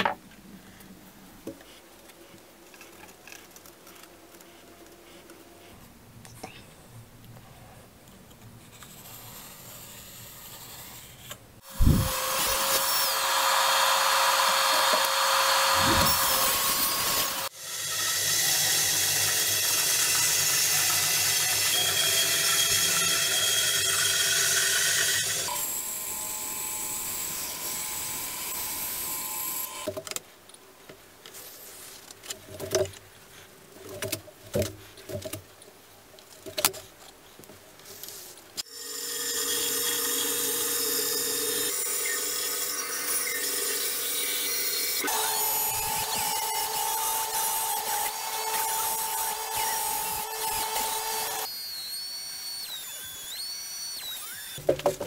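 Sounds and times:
band saw cutting wood: 0:08.8 - 0:29.8, 0:38.6 - 0:54.6
table saw running: 0:11.7 - 0:29.8, 0:38.8 - 0:54.6
boards clicking and knocking: 0:54.6 - 0:55.0.

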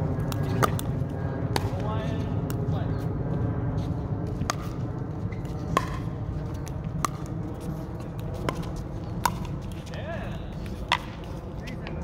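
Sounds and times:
steady low rumble: 0:00.0 - 0:12.0
paddles hitting plastic ball: 0:05.7 - 0:07.4, 0:08.0 - 0:09.9.

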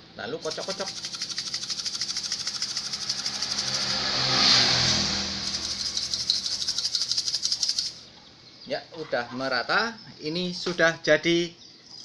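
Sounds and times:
sugar rattling in shaken plastic bottle: 0:00.4 - 0:04.0, 0:05.4 - 0:08.0.

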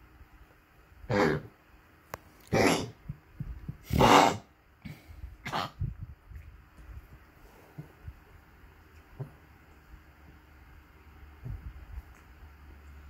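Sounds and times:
small dog coughing: 0:01.1 - 0:01.5, 0:02.5 - 0:03.0, 0:03.9 - 0:04.5, 0:05.4 - 0:05.8.

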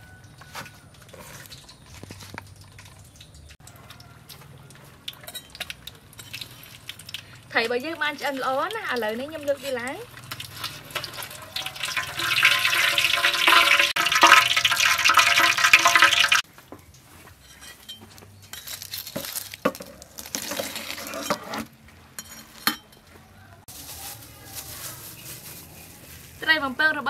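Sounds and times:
fish sizzling in hot oil: 0:05.0 - 0:16.4.

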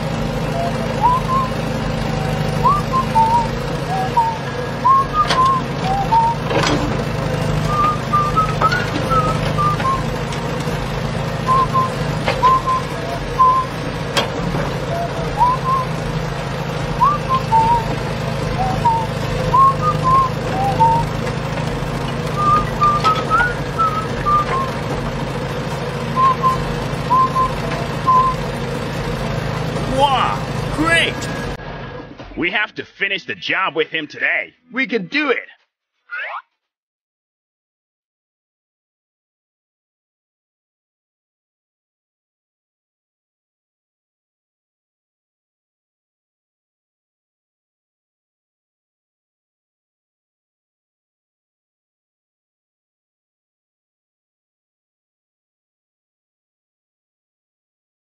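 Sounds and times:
low engine-like hum: 0:00.0 - 0:32.4
whistled tune: 0:00.4 - 0:06.7, 0:07.6 - 0:10.1, 0:11.4 - 0:13.8, 0:14.8 - 0:16.0, 0:17.0 - 0:21.2, 0:22.4 - 0:24.9, 0:26.2 - 0:28.5, 0:29.9 - 0:31.6.

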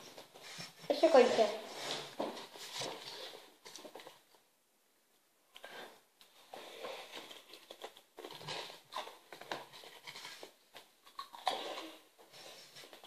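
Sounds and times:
person eating a snack: 0:06.6 - 0:13.0.

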